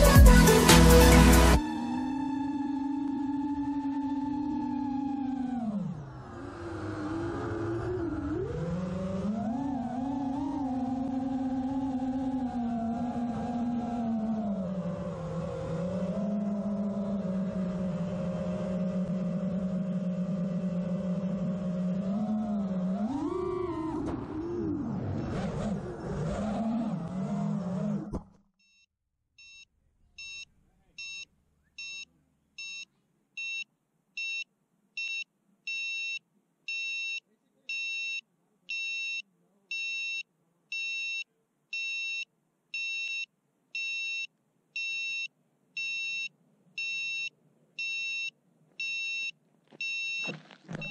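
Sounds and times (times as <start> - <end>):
drone motors whining: 0.0 - 28.4, 49.7 - 50.9
drone crashing: 0.8 - 27.3
high beeps: 40.8 - 50.9.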